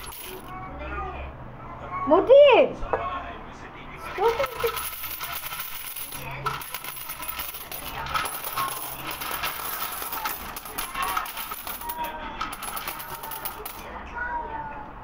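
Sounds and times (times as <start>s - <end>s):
coins pouring and clinking: 0.0s - 0.5s, 4.0s - 13.8s.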